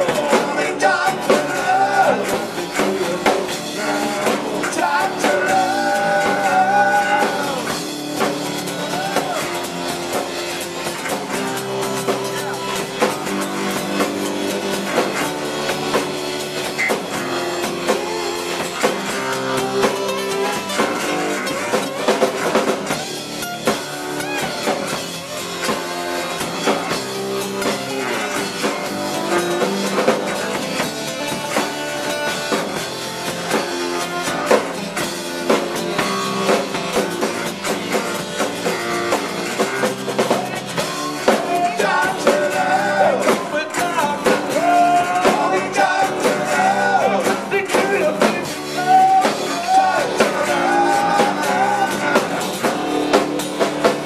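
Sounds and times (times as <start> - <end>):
person singing: 0.0 - 7.8, 17.6 - 23.3, 39.6 - 53.2
acoustic guitar: 0.0 - 54.0
drum kit: 0.0 - 54.0
electric bass guitar: 0.0 - 54.0.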